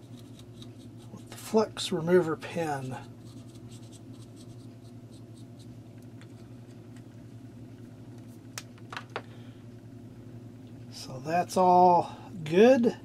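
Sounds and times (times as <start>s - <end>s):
pen tip scrubbing circuit board: 0.0s - 1.0s
steady low hum: 0.0s - 13.0s.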